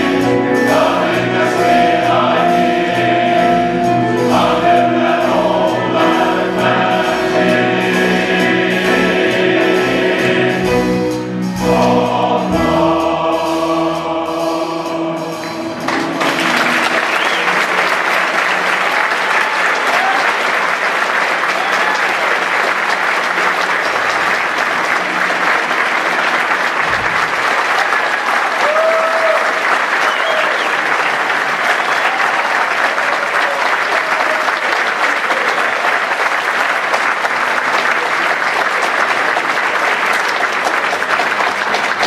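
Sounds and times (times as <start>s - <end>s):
audience applauding: 15.8s - 42.0s
whoops: 19.2s - 20.5s, 21.5s - 22.2s, 28.2s - 30.8s, 31.7s - 35.6s.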